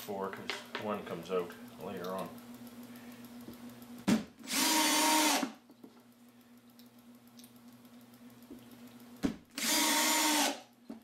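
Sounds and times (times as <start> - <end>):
cordless drill driving screw: 4.4 - 5.6, 9.6 - 10.6.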